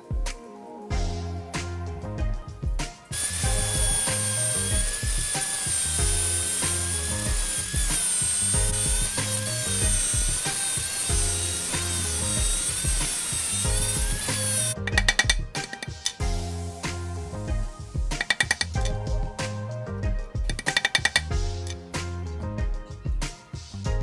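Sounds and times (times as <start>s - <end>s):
background music with beat: 0.0s - 24.0s
angle grinder cutting metal: 3.1s - 16.2s.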